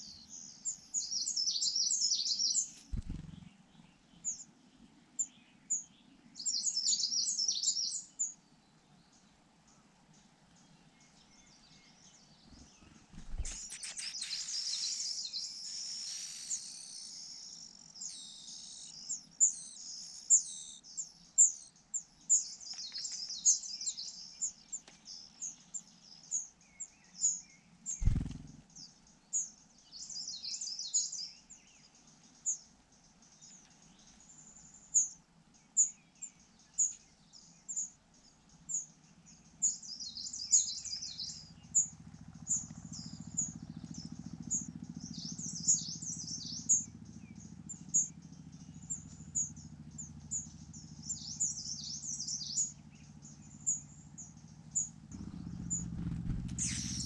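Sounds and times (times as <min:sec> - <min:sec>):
nestlings cheeping: 0:12.9 - 0:20.8, 0:55.1 - 0:57.0.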